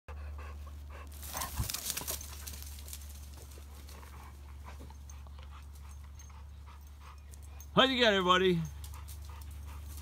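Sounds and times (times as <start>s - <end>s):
leaves crackling: 1.1s - 3.9s
dogs running on dry grass: 1.1s - 5.1s.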